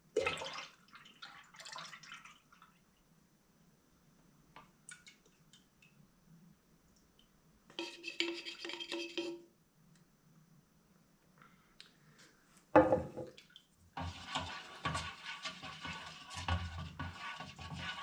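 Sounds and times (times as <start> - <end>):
stick scraping metal can: 7.7 - 9.4, 14.0 - 18.0.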